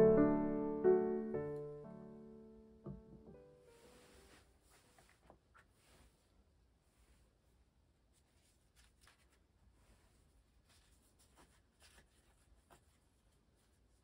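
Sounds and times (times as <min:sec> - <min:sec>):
paper rustling: 0:03.7 - 0:06.4, 0:08.1 - 0:14.0.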